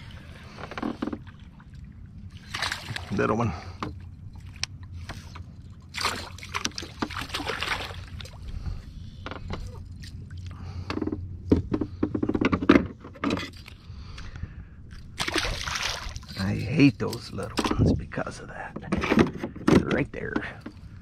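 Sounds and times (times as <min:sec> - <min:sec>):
knocks and rattles on kayak deck: 0:00.5 - 0:01.4, 0:08.6 - 0:09.8, 0:10.6 - 0:13.6, 0:18.6 - 0:20.9
fish splashing at water surface: 0:05.9 - 0:08.3, 0:15.2 - 0:16.3.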